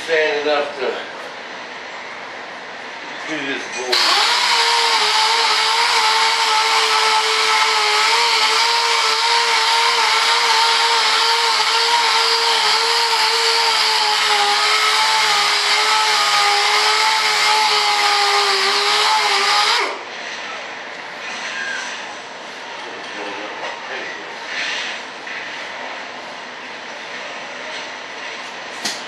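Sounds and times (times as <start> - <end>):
pneumatic sander whining: 3.9 - 20.0.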